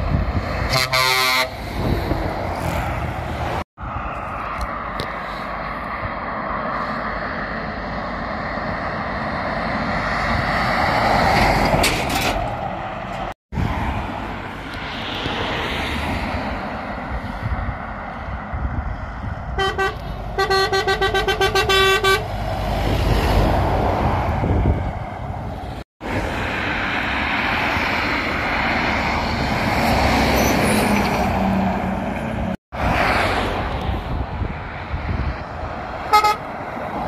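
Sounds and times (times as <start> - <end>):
vehicles passing at speed: 0.0 - 37.0
lorry horn toots: 0.7 - 1.6, 19.6 - 22.3, 36.1 - 36.5.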